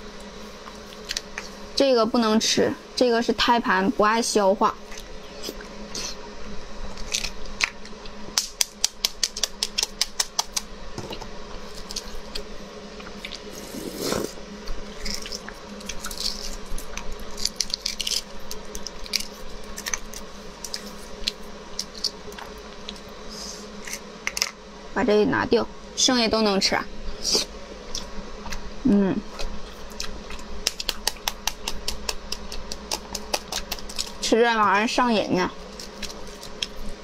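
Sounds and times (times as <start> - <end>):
eggshells cracking and peeling: 0.7 - 1.5, 6.9 - 10.7, 11.6 - 23.1, 29.4 - 34.3, 35.6 - 37.0
person slurping: 13.2 - 14.4.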